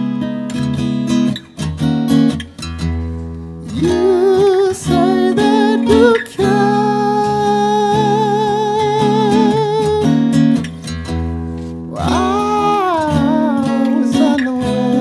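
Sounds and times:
strummed guitar chords: 0.0 - 15.0
man singing with vibrato: 3.7 - 10.4, 11.9 - 15.0.

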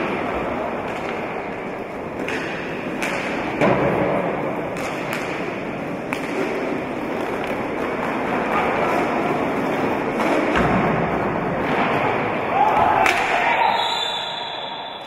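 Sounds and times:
hockey sticks striking ball: 0.0 - 13.7.

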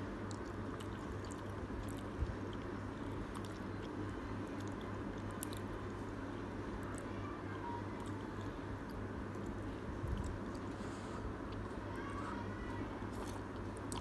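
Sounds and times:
low steady hum: 0.0 - 14.0
person chewing noodles: 0.2 - 5.9, 8.4 - 11.8, 13.1 - 14.0.

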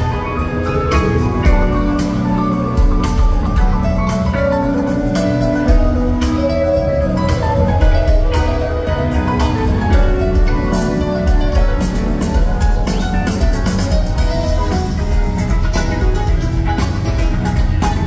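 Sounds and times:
drum kit beat: 0.0 - 18.0
electric guitars: 0.0 - 18.0
keyboard: 0.0 - 18.0.

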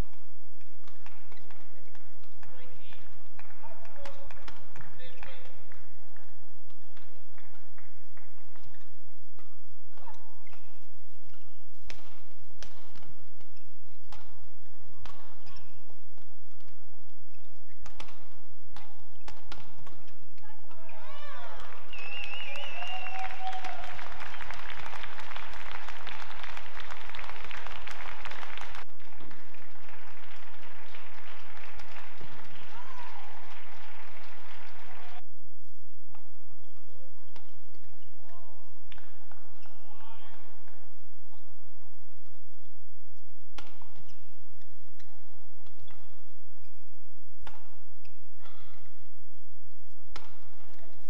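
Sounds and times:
racket hitting shuttlecock: 0.0 - 22.2, 36.1 - 40.9, 42.0 - 51.0
shoes squeaking on court floor: 0.6 - 2.9, 8.5 - 22.7, 35.8 - 40.0, 42.2 - 51.0
crowd applause: 21.7 - 35.2.

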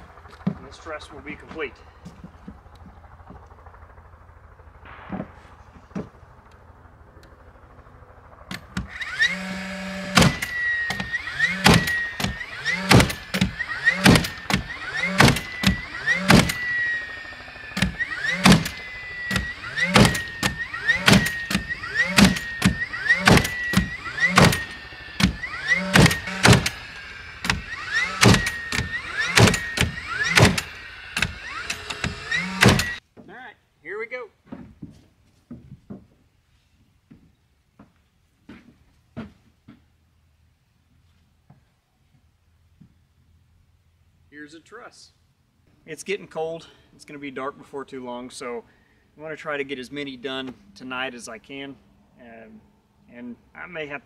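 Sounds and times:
nail gun motor whine: 0.0 - 33.0
nail gun shots: 8.5 - 16.8, 17.7 - 33.0.

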